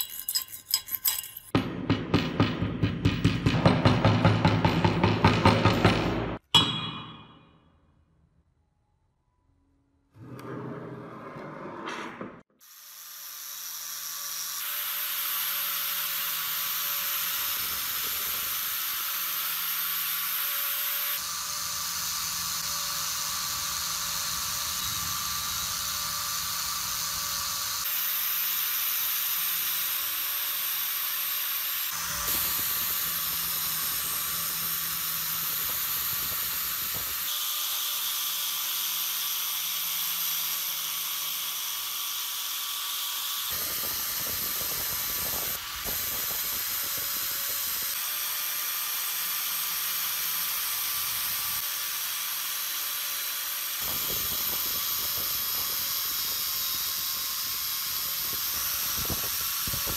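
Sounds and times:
wire brush scouring metal: 0:00.0 - 0:01.6
power tool motor hum: 0:12.6 - 0:59.9.

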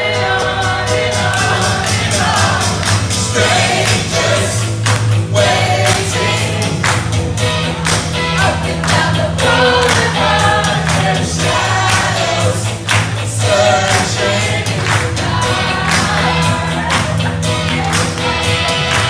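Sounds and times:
backing track with beat and bass: 0:00.0 - 0:19.0
people singing karaoke: 0:00.0 - 0:19.0.

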